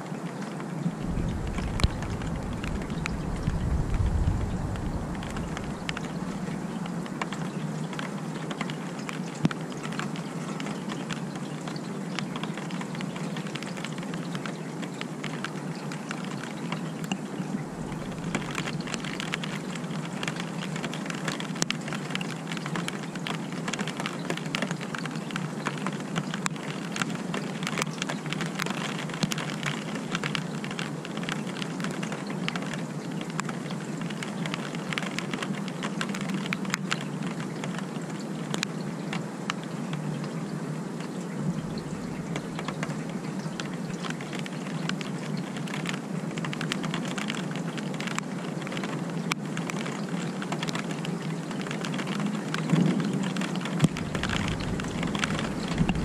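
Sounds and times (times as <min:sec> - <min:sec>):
steady rain falling: 0:00.0 - 0:56.0
drops ticking on surfaces: 0:01.0 - 0:11.3, 0:17.7 - 0:32.7, 0:41.5 - 0:56.0.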